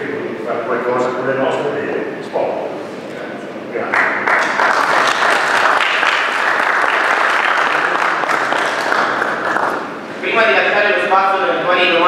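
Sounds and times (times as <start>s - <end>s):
people clapping: 3.8s - 10.0s.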